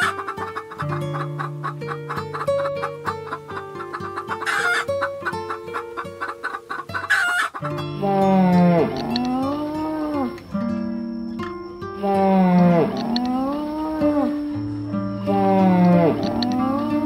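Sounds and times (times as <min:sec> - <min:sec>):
chicken squawks: 0:00.0 - 0:08.2
chickens clucking: 0:00.0 - 0:10.5, 0:12.0 - 0:17.0
plucked-string music: 0:00.0 - 0:17.0
moo-like bellow: 0:08.0 - 0:10.3, 0:12.0 - 0:14.5, 0:15.2 - 0:17.0.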